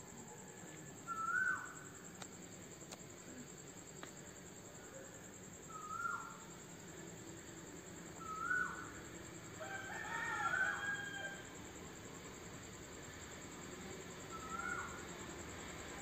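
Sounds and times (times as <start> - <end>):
faint roosters crowing: 9.5 - 11.8.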